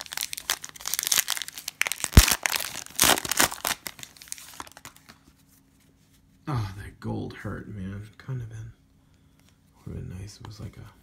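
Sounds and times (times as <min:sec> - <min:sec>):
foil pack crinkling and tearing: 0:00.0 - 0:05.2.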